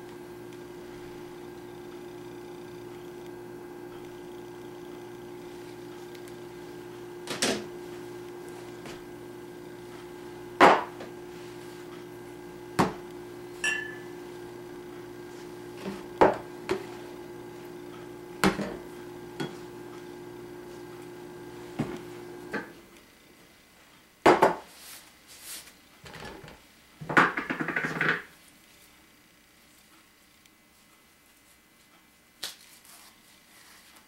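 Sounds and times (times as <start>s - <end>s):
steady low hum: 0.0s - 23.9s.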